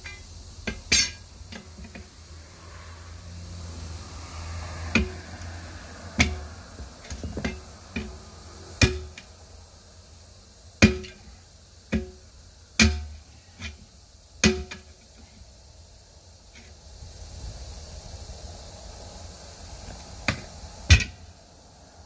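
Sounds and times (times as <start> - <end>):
tire irons clanking on metal wheel: 0.0 - 2.2, 4.8 - 5.5, 6.1 - 8.2, 8.8 - 9.3, 10.8 - 15.2, 20.3 - 21.3.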